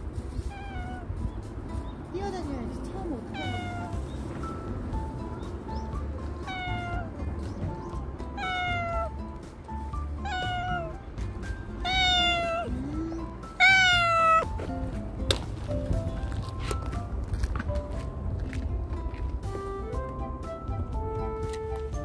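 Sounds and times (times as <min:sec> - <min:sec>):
soft background music: 0:00.0 - 0:22.0
cat meowing: 0:00.4 - 0:01.2, 0:03.3 - 0:04.0, 0:06.4 - 0:07.2, 0:08.3 - 0:09.2, 0:10.2 - 0:11.0, 0:11.8 - 0:14.5.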